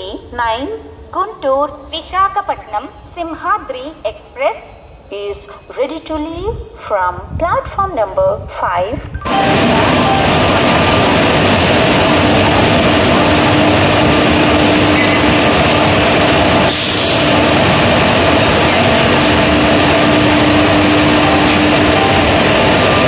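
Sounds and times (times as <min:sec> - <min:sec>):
electric locomotive blowers rushing: 0:09.2 - 0:23.0.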